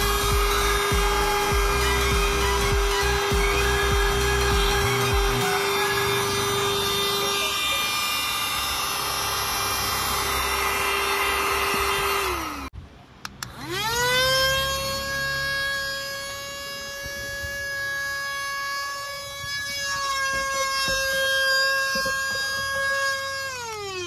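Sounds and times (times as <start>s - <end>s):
vacuum cleaner motor whine: 0.0s - 12.7s, 13.5s - 24.0s
clicks: 13.2s - 13.6s.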